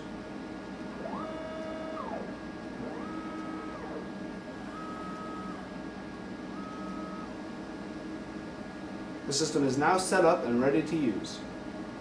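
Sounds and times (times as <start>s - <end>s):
stepper motor whine: 0.9s - 7.4s.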